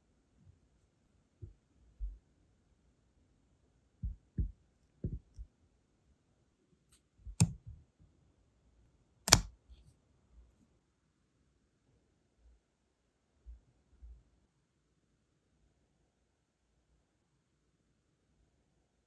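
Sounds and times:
soft low knocks on stone: 0:04.0 - 0:05.4
sharp clicks: 0:09.3 - 0:09.5.

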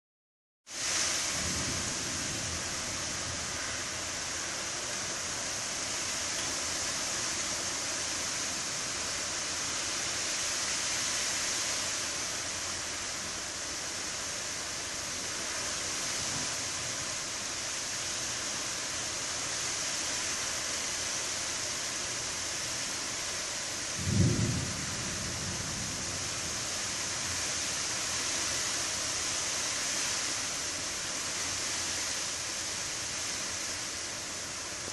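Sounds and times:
rain hissing: 0:00.7 - 0:34.9
strong wind: 0:24.0 - 0:27.4.

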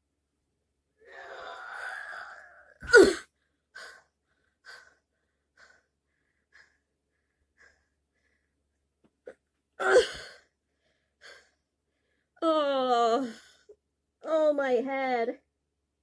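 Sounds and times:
person groaning: 0:01.0 - 0:03.2.

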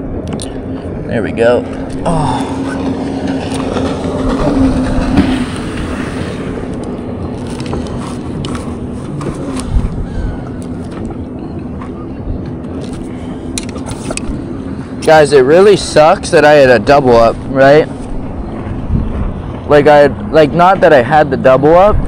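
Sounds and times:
low engine drone: 0:00.0 - 0:22.0
rushing wind-like noise: 0:00.0 - 0:22.0.

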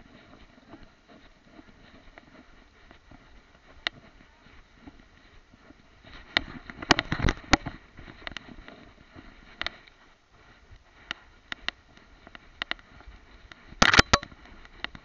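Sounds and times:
rustling through long grass: 0:00.0 - 0:15.0
twigs clicking on camera: 0:13.5 - 0:15.0.

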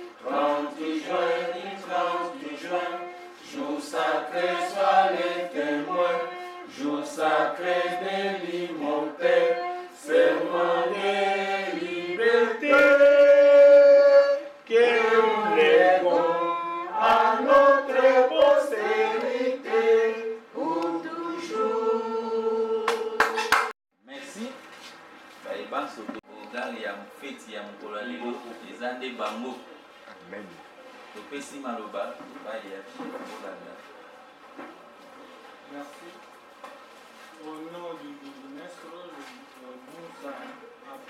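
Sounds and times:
group of voices singing: 0:00.0 - 0:23.5.

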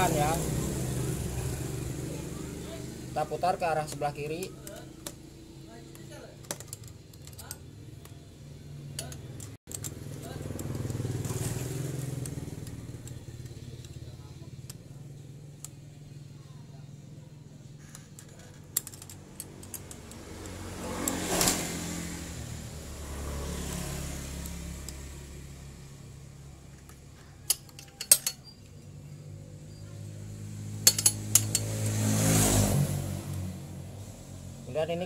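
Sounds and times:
vehicles passing: 0:00.0 - 0:35.0
spanner clinking on metal: 0:06.4 - 0:08.2, 0:08.9 - 0:11.1, 0:17.8 - 0:21.5, 0:26.8 - 0:29.0, 0:30.8 - 0:32.0.

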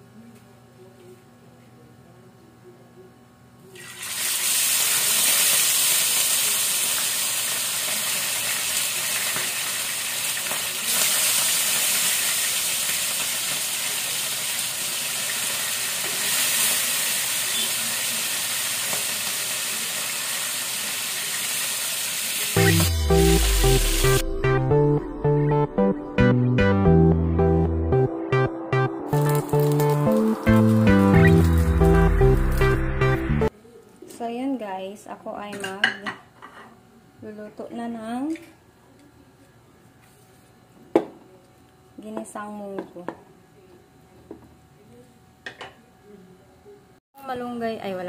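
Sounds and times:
fish sizzling in hot oil: 0:03.8 - 0:22.9.

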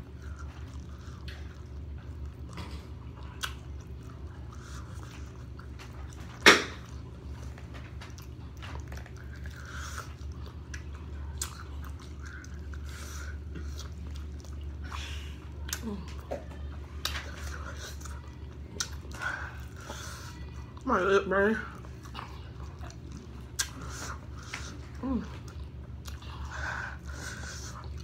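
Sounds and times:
chewing chicken wings: 0:00.0 - 0:28.0
steady low hum: 0:00.0 - 0:28.0.

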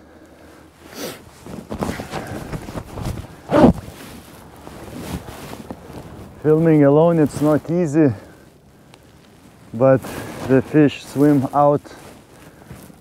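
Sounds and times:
man breathing: 0:00.0 - 0:01.3, 0:01.9 - 0:03.5, 0:10.0 - 0:10.5, 0:11.9 - 0:13.0.

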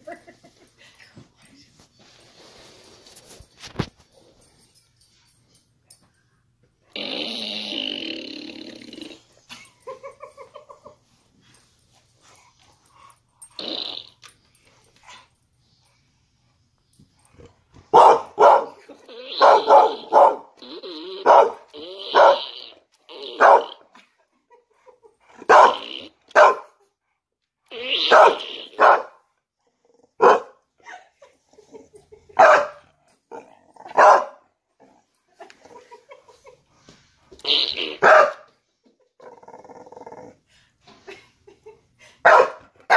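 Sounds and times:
toy fart sound: 0:06.9 - 0:09.3, 0:13.5 - 0:14.4, 0:19.0 - 0:23.8, 0:25.6 - 0:26.2, 0:27.7 - 0:28.8, 0:37.3 - 0:38.0
dog barking: 0:17.9 - 0:20.5, 0:21.2 - 0:22.5, 0:23.4 - 0:23.8, 0:25.5 - 0:26.8, 0:28.0 - 0:29.2, 0:30.2 - 0:30.6, 0:32.4 - 0:32.8, 0:33.9 - 0:34.4, 0:38.0 - 0:38.5, 0:42.3 - 0:42.9.

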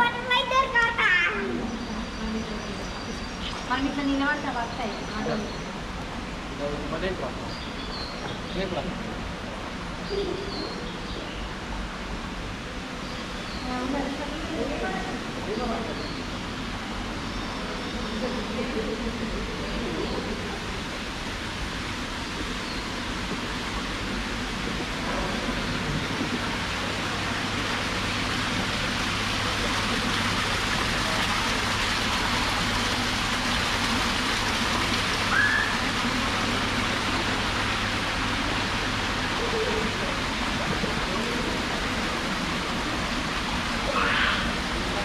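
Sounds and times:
waterfall splashing over rocks: 0:20.1 - 0:45.0.

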